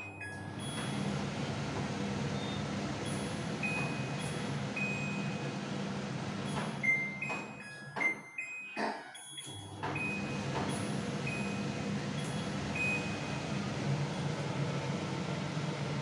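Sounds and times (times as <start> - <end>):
kitchen chimney blower fan: 0.0 - 7.8, 9.5 - 16.0
control panel beeps: 11.2 - 13.5.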